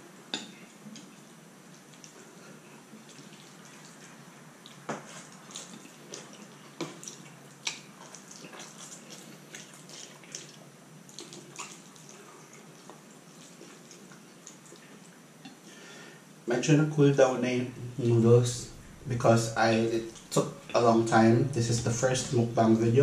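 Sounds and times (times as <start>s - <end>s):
person chewing noodles: 0.8s - 15.6s.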